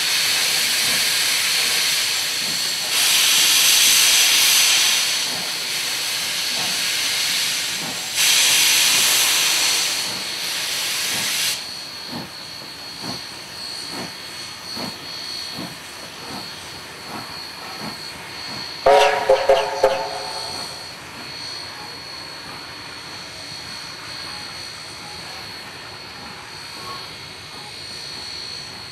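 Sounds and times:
steam hissing from cylinder drains: 0:00.0 - 0:12.4
train rolling past with regular beat: 0:00.0 - 0:21.4.

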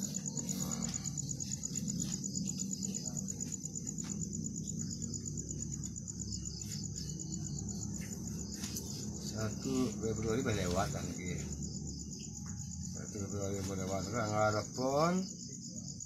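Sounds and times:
crickets chirping: 0:00.0 - 0:16.0
low background hum: 0:00.0 - 0:16.0.

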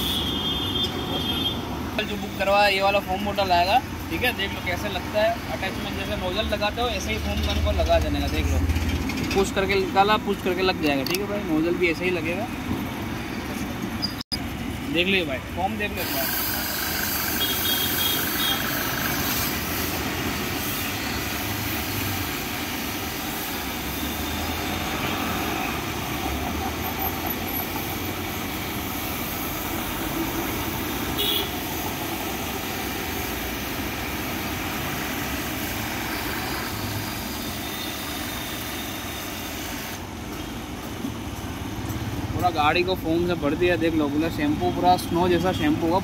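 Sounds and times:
pressure washer motor running: 0:15.8 - 0:24.7
hissing foam spray: 0:16.0 - 0:25.7.

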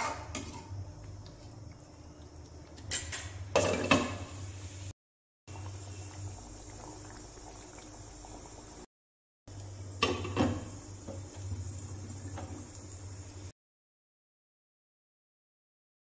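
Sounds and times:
curry bubbling in a pan: 0:05.5 - 0:08.9.

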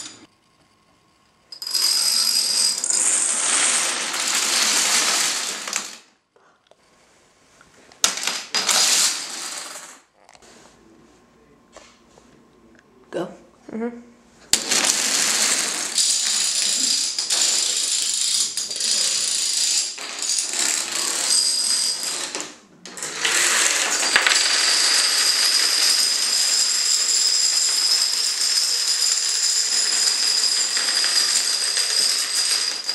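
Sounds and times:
dominoes toppling clatter: 0:01.6 - 0:06.1, 0:08.0 - 0:10.0, 0:14.5 - 0:32.9.

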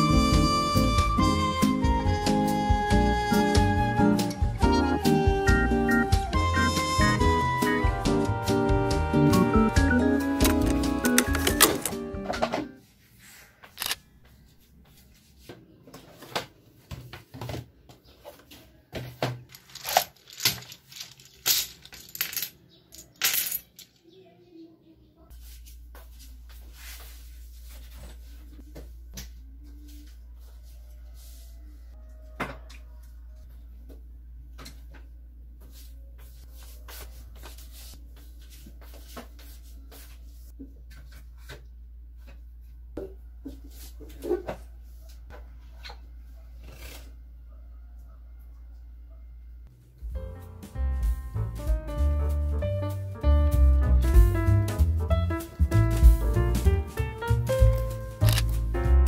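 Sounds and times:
small hard objects clinking: 0:19.5 - 0:24.1.

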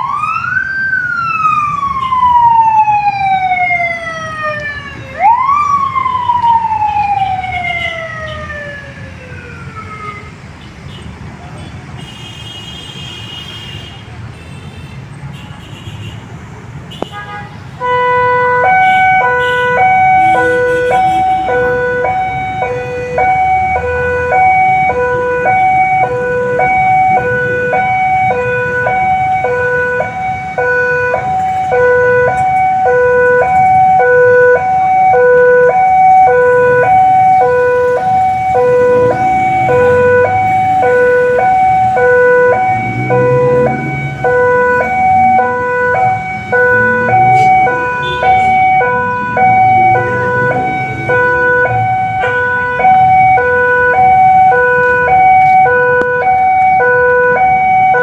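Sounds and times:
vehicle engines rumbling: 0:00.0 - 0:58.0
level crossing two-tone alarm: 0:18.1 - 0:58.0.

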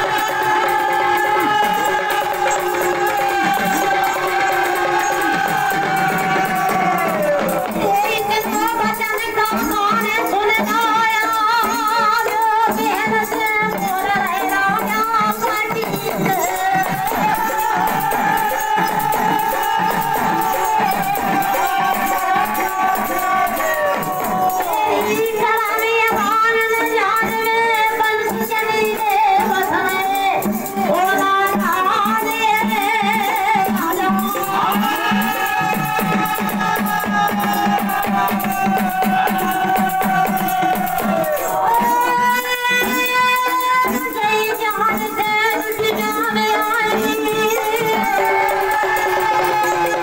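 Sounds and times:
hand drum rhythm: 0:00.0 - 0:50.0
high voice singing folk song: 0:00.0 - 0:50.0
jingling percussion: 0:00.0 - 0:50.0.

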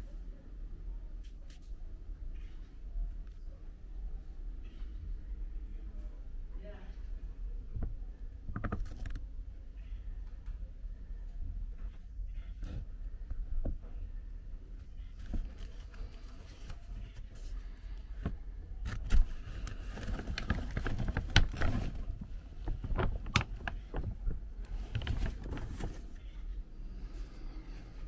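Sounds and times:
dry kibble shifting and clicking: 0:18.2 - 0:26.2
plastic sack crinkling: 0:18.9 - 0:26.2.

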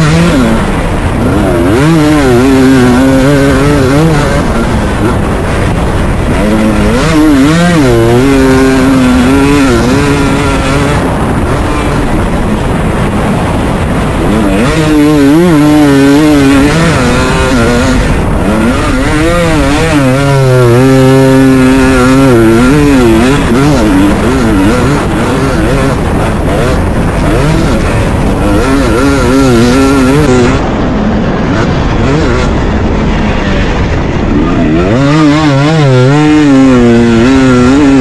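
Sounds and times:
dirt bike engine revving: 0:00.0 - 0:38.0
steady rushing noise: 0:00.0 - 0:38.0.

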